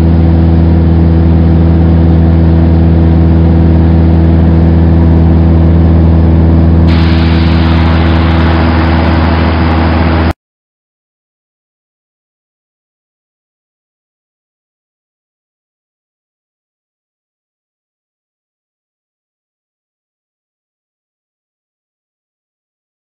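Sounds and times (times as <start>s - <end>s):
propeller plane engine drone: 0.0s - 10.4s.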